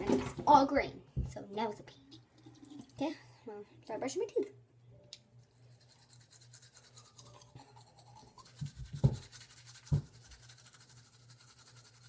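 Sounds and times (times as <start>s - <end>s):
toothbrush scrubbing teeth: 5.4s - 12.0s.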